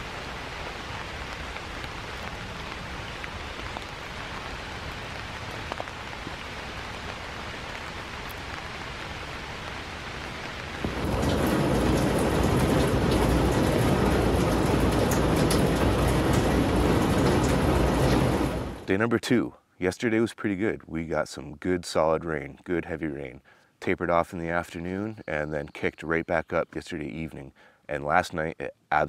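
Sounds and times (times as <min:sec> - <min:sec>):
rain falling on a tent: 0:00.0 - 0:19.1.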